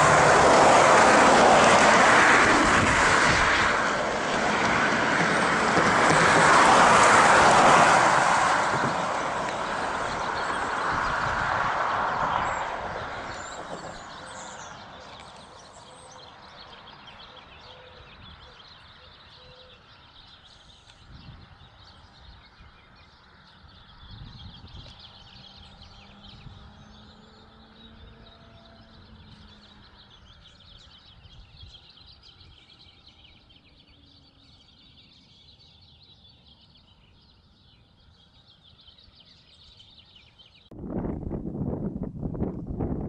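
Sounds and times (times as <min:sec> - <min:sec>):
vehicle passing: 0:00.0 - 0:17.6, 0:23.2 - 0:31.2
distant traffic: 0:00.0 - 0:41.8
faint birds chirping: 0:08.7 - 0:40.7.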